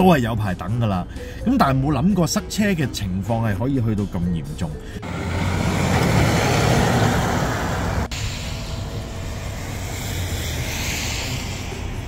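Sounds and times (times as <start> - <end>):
road noise: 4.7 - 12.0
vehicle engine rumble: 4.8 - 12.0.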